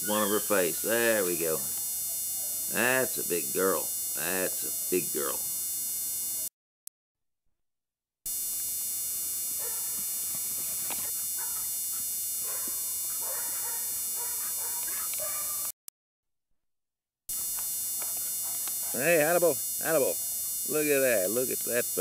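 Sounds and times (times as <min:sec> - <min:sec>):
electrical hum and whine: 0:00.0 - 0:06.5, 0:08.3 - 0:15.7, 0:17.3 - 0:22.0
dogs barking faintly: 0:12.4 - 0:15.7.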